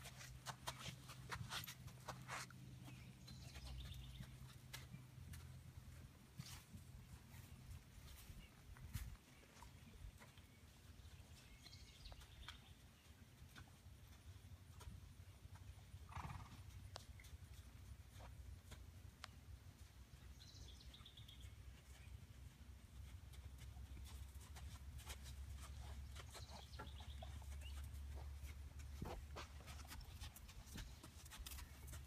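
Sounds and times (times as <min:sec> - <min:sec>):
hoof steps on sand: 0:00.0 - 0:10.7, 0:22.9 - 0:32.0.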